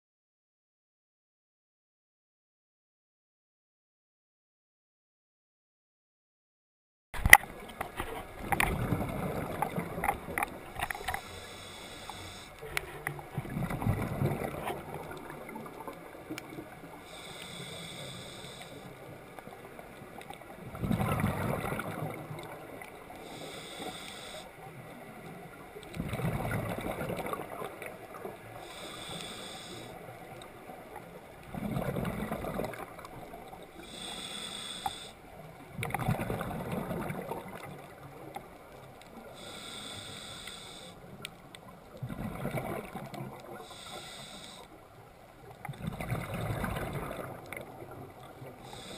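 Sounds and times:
exhaled bubbles rushing: 0:08.4 - 0:10.6, 0:12.8 - 0:15.8, 0:20.7 - 0:22.6, 0:31.5 - 0:33.3, 0:35.8 - 0:38.0, 0:42.0 - 0:43.5, 0:45.7 - 0:48.2
regulator inhale hiss: 0:10.9 - 0:12.7, 0:17.0 - 0:19.0, 0:23.1 - 0:24.6, 0:28.6 - 0:30.1, 0:33.8 - 0:35.2, 0:39.2 - 0:41.2, 0:43.6 - 0:44.8, 0:48.6 - 0:48.9.

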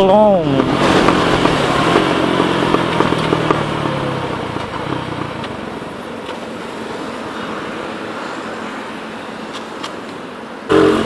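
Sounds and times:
motorcycle engine running: 0:00.0 - 0:06.1, 0:10.7 - 0:11.0
wind and road noise: 0:00.0 - 0:11.0.

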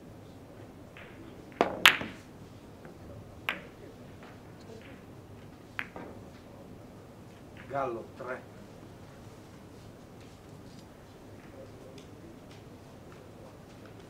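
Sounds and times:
billiard balls clicking: 0:01.0 - 0:06.5, 0:07.3 - 0:08.0
cue tip hitting ball: 0:01.0 - 0:06.5.

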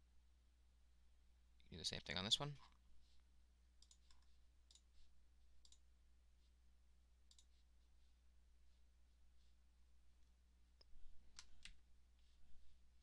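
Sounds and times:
low electrical hum: 0:00.0 - 0:13.0
computer mouse clicks: 0:03.8 - 0:04.9, 0:05.6 - 0:05.8, 0:07.3 - 0:07.5.

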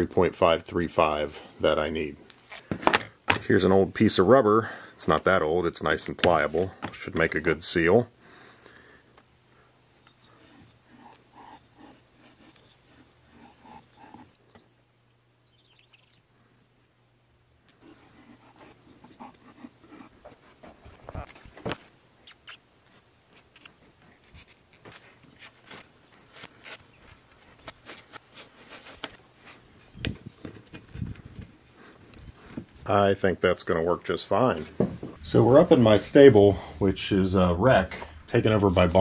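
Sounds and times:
hand tools scratching rubber: 0:10.2 - 0:14.5, 0:17.8 - 0:21.4, 0:23.4 - 0:32.5.

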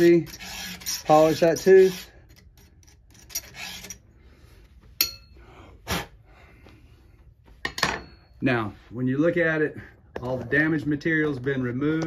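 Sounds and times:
file rasping on chainsaw chain: 0:00.0 - 0:04.0
sharp metallic clink: 0:05.0 - 0:05.3.

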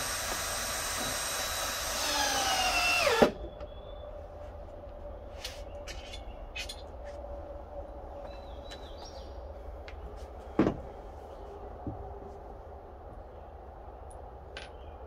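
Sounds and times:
wooden knocks and clunks: 0:10.6 - 0:10.9.

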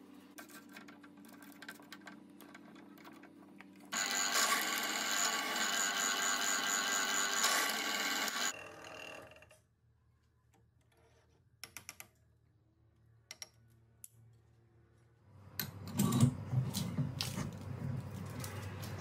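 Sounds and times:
drill press motor running down: 0:03.9 - 0:09.4.

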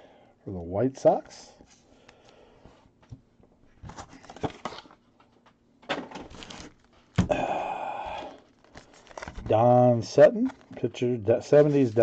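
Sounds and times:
plastic wrappers crinkling: 0:06.2 - 0:07.2, 0:08.2 - 0:09.6.

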